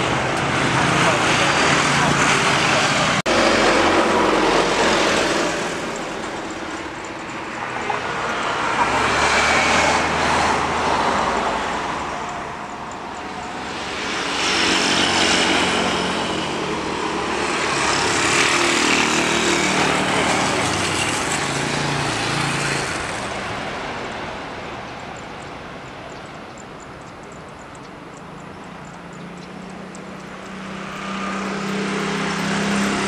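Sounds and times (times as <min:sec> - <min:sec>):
jet airliner roar: 0:00.0 - 0:26.2.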